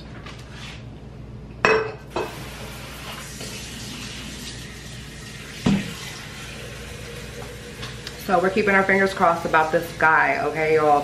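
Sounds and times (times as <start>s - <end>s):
glass vase clinking on hard surface: 1.6s - 2.0s
kitchen tap running: 2.1s - 11.0s.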